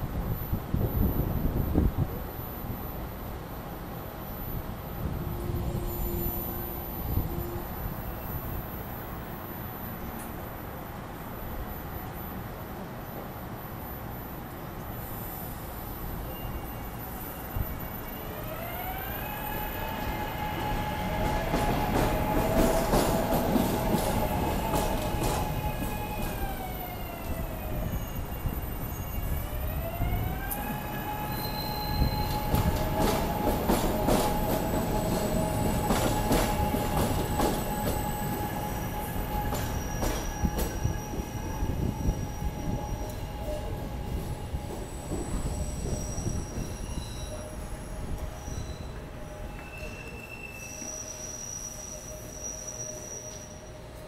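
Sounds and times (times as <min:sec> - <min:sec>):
train rumble: 0:14.7 - 0:51.3
train whining tones: 0:15.2 - 0:54.0
wheel clicks and squeals on rails: 0:30.4 - 0:43.7, 0:44.6 - 0:54.0.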